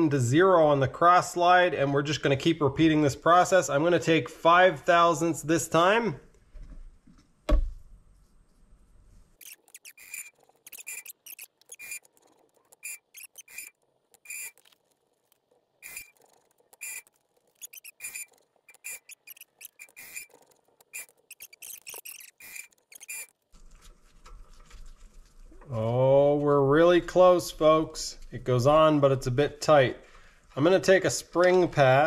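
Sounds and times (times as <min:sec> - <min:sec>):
squeaky metallic clicks: 0:09.4 - 0:23.4.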